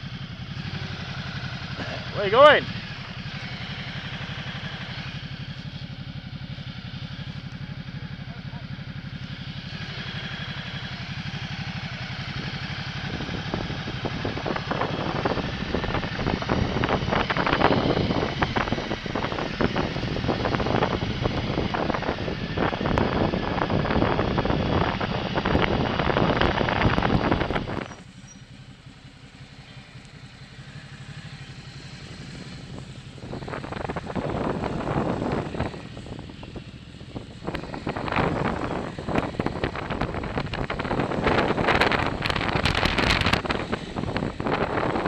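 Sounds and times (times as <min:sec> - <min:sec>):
motorcycle engine running: 0:00.0 - 0:45.0
rough rushing noise: 0:37.2 - 0:45.0.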